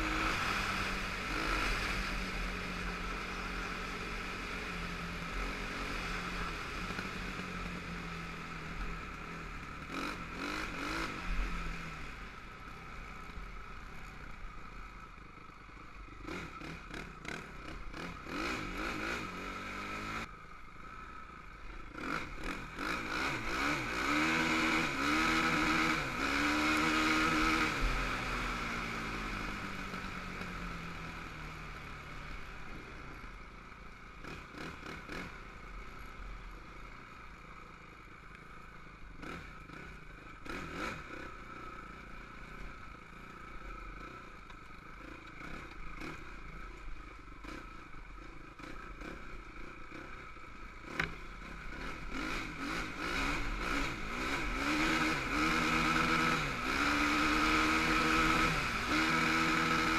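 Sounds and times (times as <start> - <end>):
quad engine revving: 0.0 - 12.8, 16.2 - 20.3, 21.9 - 32.5, 34.2 - 35.6, 39.2 - 44.3, 47.4 - 59.9.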